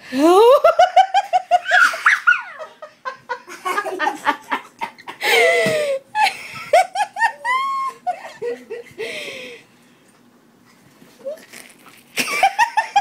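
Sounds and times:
people laughing hard: 0:00.5 - 0:09.2, 0:12.2 - 0:13.0.

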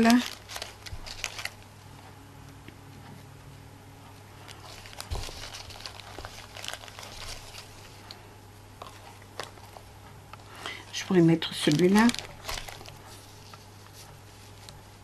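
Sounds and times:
ribbon scraps rustling: 0:00.0 - 0:01.7, 0:04.4 - 0:08.2, 0:10.9 - 0:15.0
steady low hum: 0:00.0 - 0:15.0.

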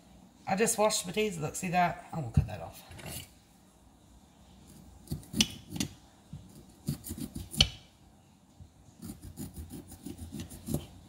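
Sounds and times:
knife cutting potato: 0:04.7 - 0:07.9, 0:09.0 - 0:11.0.

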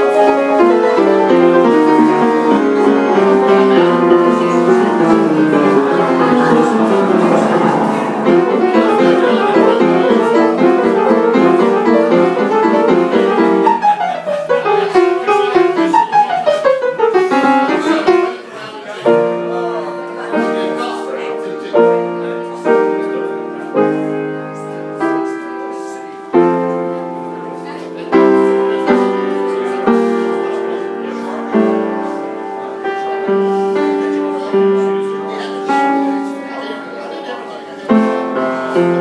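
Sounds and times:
solo piano: 0:00.0 - 0:39.0.

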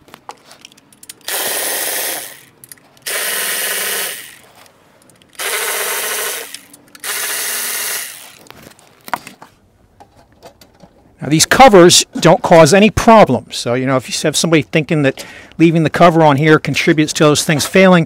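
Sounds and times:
power tool running in bursts: 0:01.3 - 0:04.4, 0:05.4 - 0:08.4.

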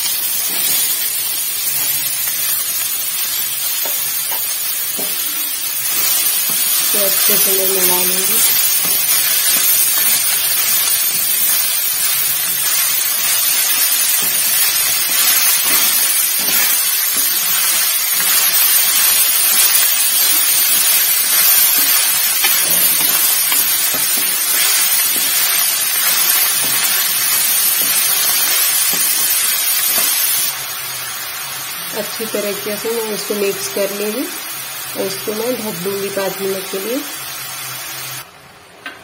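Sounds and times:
vegetables sizzling in oil: 0:00.0 - 0:38.4
wooden spatula stirring: 0:08.3 - 0:29.2.

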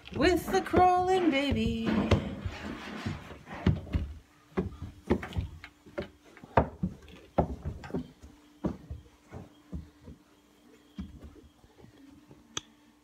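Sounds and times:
knocks on carpeted stairs: 0:03.6 - 0:10.2.

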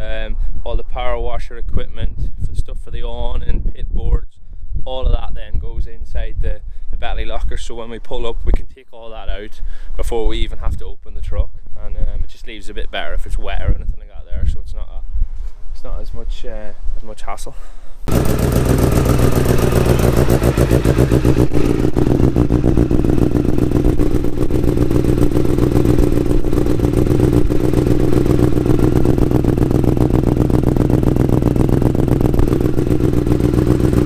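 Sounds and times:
engine running steadily: 0:18.1 - 0:34.0.

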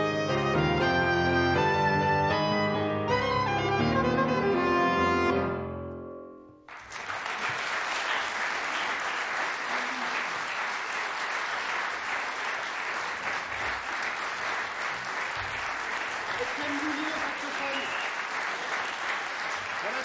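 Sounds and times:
piano and saxophone chord: 0:00.0 - 0:06.6
audience applause: 0:06.7 - 0:20.0.

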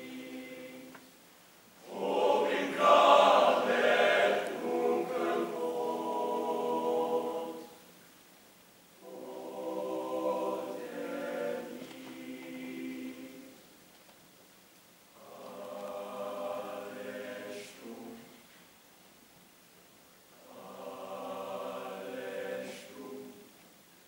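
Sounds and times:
male choir singing chords: 0:00.0 - 0:01.1, 0:01.8 - 0:07.9, 0:09.0 - 0:13.6, 0:15.2 - 0:18.4, 0:20.4 - 0:23.6.

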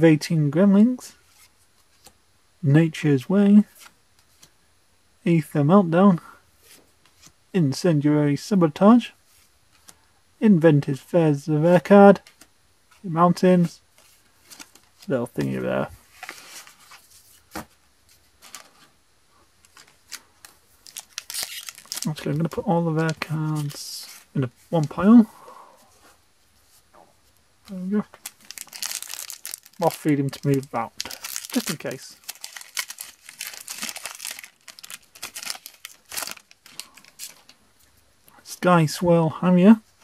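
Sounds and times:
foil wrapper tearing and crinkling: 0:19.7 - 0:22.2, 0:28.2 - 0:37.6.

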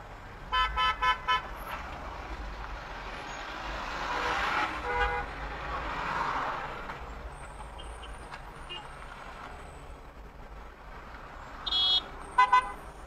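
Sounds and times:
congested traffic noise: 0:00.0 - 0:13.0
car horn honking: 0:00.5 - 0:01.5, 0:04.2 - 0:05.3, 0:11.6 - 0:12.8.

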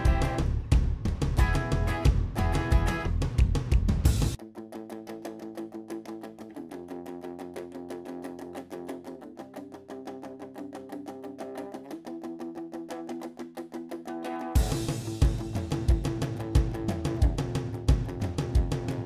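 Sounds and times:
guitar strumming chords: 0:00.0 - 0:00.7, 0:01.4 - 0:03.2, 0:04.4 - 0:19.0
full band with drums: 0:14.6 - 0:19.0.

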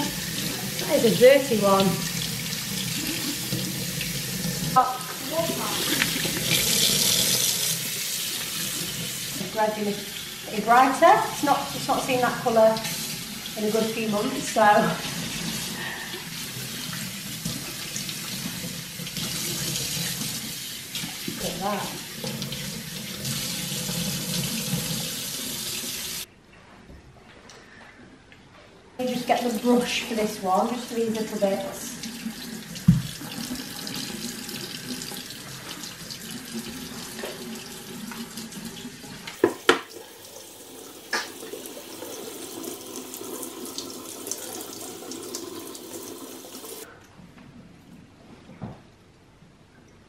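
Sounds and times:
tap water running over filter: 0:00.0 - 0:15.5, 0:16.2 - 0:26.3, 0:31.0 - 0:46.9
tap running into steel sink: 0:32.8 - 0:33.2, 0:39.3 - 0:40.0.

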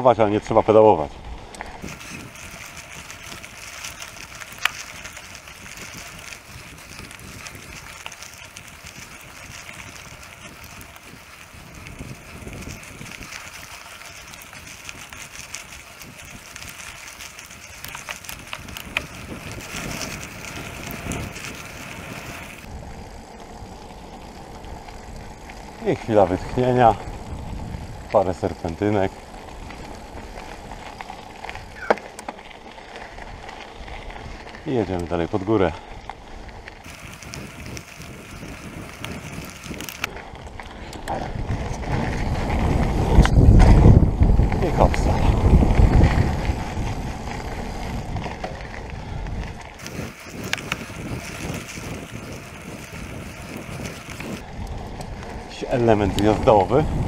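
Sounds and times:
bike clicks and rattles: 0:00.0 - 0:57.0
bike tyres rolling on gravel: 0:00.0 - 0:57.0
wind buffeting microphone: 0:00.0 - 0:57.0.

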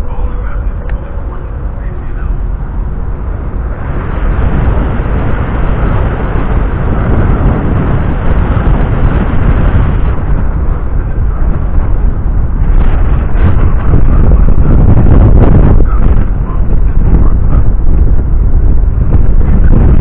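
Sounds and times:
rush of ship's wake: 0:00.0 - 0:20.0
wind buffeting microphone: 0:00.0 - 0:20.0.

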